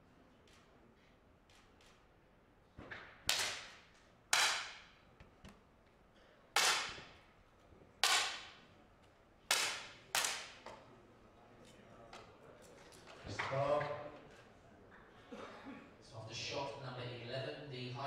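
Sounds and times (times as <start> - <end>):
air pistol shots: 6.6 - 7.1.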